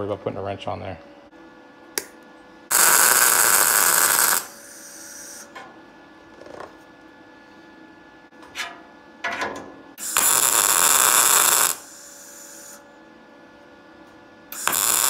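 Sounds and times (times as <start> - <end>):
welder crackling hiss: 2.7 - 5.5, 10.0 - 12.8, 14.5 - 15.0.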